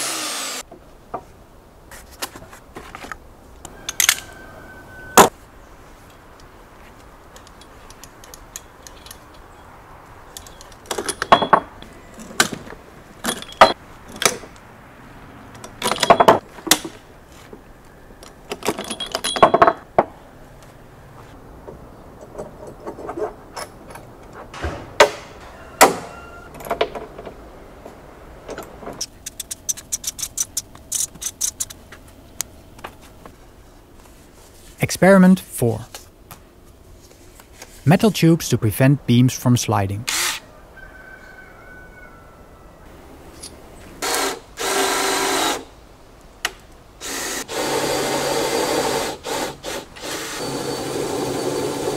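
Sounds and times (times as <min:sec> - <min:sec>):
metallic clinks and clanks: 0:10.3 - 0:12.4, 0:13.2 - 0:14.4, 0:15.6 - 0:16.4, 0:18.6 - 0:19.8.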